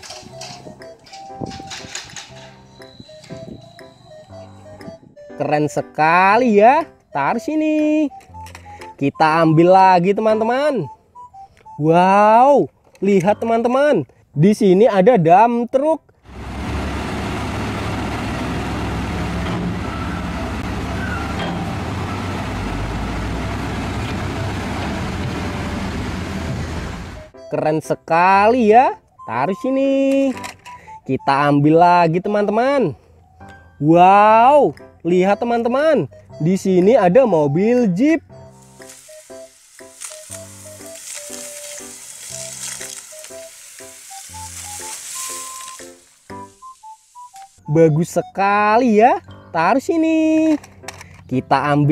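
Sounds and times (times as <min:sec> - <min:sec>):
background music with short notes: 0:00.0 - 0:14.9, 0:26.4 - 0:51.9
diesel truck engine rumbling: 0:16.1 - 0:27.4
steady high hiss: 0:38.6 - 0:47.6.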